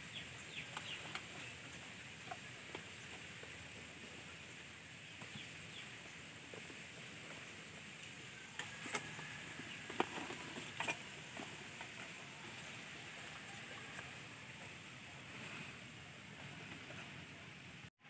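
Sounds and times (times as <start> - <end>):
faint outdoor hiss: 0.0 - 18.0.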